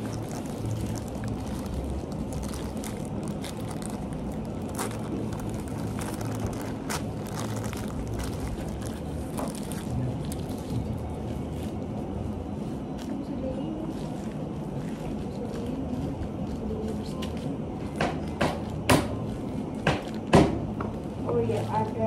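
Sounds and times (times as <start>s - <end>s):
plastic wrap crackling: 0.0s - 17.4s
low background rumble: 0.0s - 22.0s.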